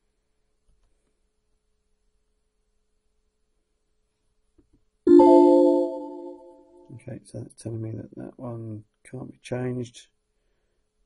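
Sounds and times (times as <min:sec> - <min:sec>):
computer alert chime: 0:05.1 - 0:06.7.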